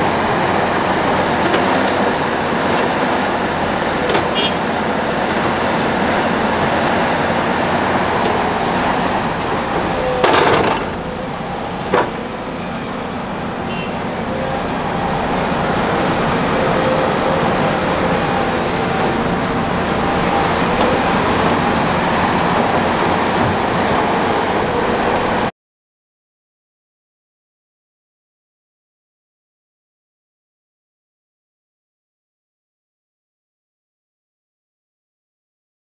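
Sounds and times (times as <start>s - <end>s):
excavator diesel engines running: 0.0s - 25.5s
dirt loading into dump truck: 0.1s - 24.8s.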